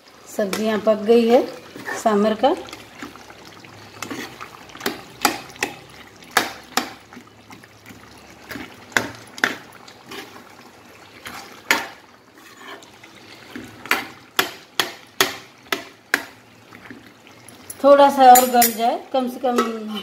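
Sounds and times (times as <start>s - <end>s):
metal ladle stirring thick gravy: 1.6s - 17.8s.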